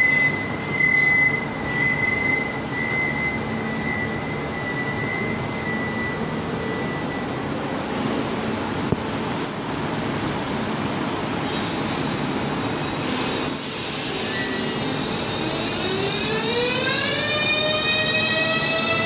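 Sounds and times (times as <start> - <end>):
train noise: 0.0 - 19.0
loud air hiss: 12.9 - 15.8.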